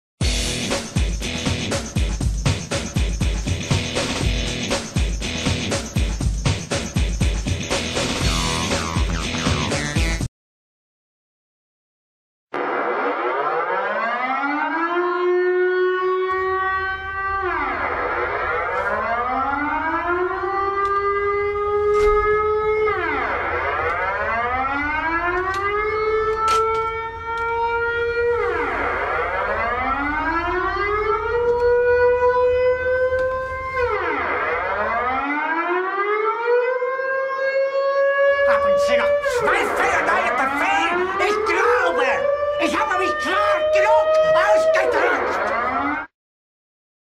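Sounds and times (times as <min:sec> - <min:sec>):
air-raid siren wailing: 0:12.6 - 0:46.1.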